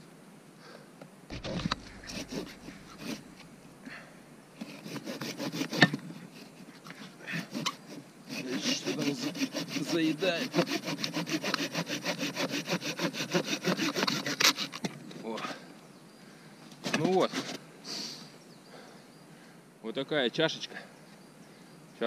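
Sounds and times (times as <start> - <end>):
sharp knock: 1.3 - 3.5
hand saw cutting wood: 1.3 - 4.0, 4.6 - 6.6, 7.2 - 14.9.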